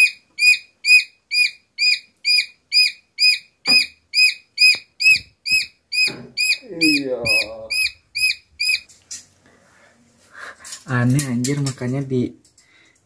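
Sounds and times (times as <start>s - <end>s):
chick peeping loudly: 0.0s - 8.9s.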